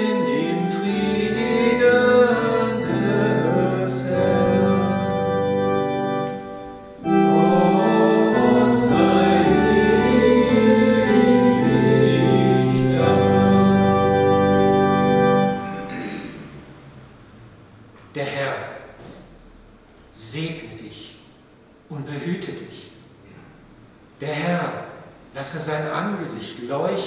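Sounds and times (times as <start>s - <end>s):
church organ chords: 0.0s - 17.2s.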